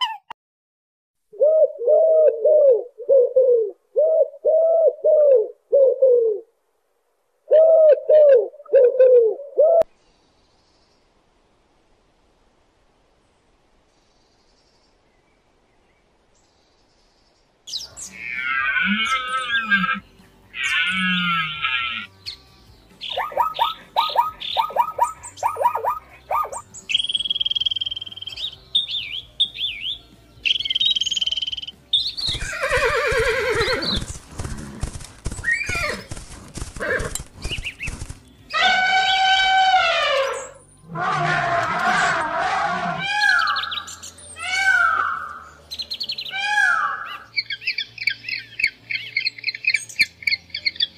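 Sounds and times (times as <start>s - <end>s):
long wavering animal calls: 18.0s - 22.1s, 23.1s - 26.6s, 38.5s - 45.5s.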